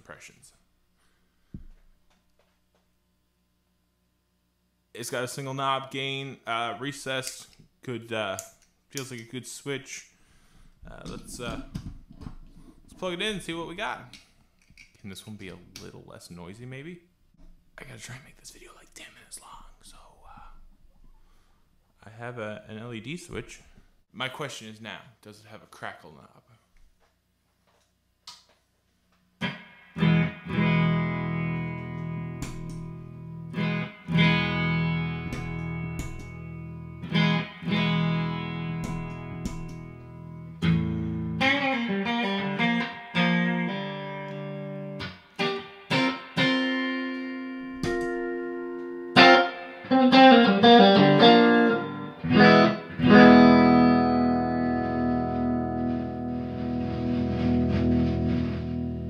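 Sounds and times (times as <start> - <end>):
electric guitar chords and notes: 29.4 - 59.0.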